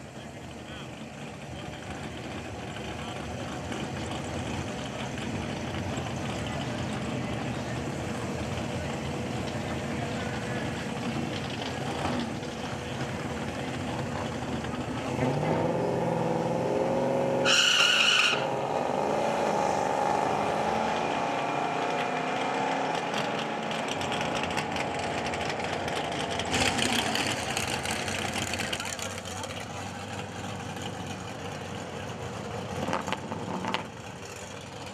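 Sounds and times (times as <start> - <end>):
crowd voices: 0.0 - 17.0, 20.1 - 33.4
car engines running: 0.0 - 34.9
short shrill squeal: 17.4 - 18.5.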